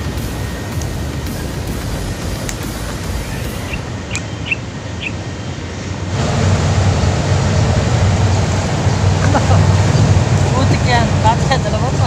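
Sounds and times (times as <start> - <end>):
distant city traffic: 0.0 - 12.0
wind: 0.0 - 12.0
faint high chirps: 1.4 - 6.0.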